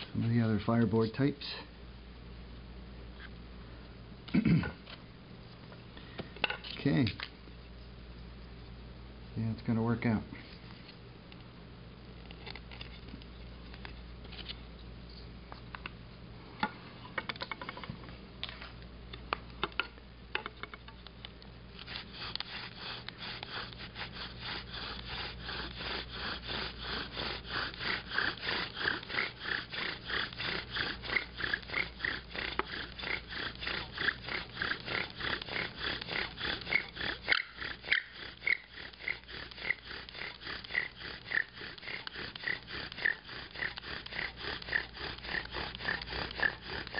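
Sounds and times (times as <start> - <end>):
bow drill squeaking wood on wood: 21.8 - 46.9.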